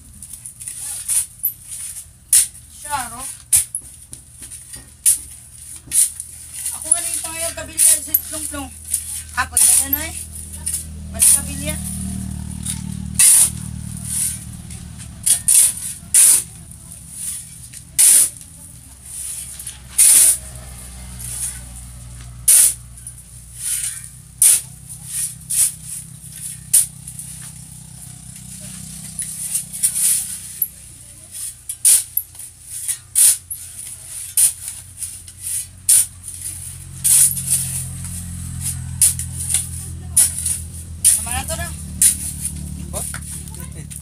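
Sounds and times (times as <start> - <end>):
shovel scraping concrete floor: 0.2 - 44.0.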